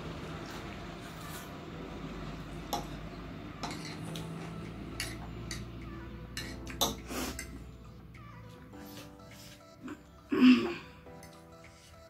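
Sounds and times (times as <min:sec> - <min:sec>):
cutlery clinking on plate: 0:03.6 - 0:04.3, 0:05.0 - 0:05.7, 0:06.3 - 0:07.6.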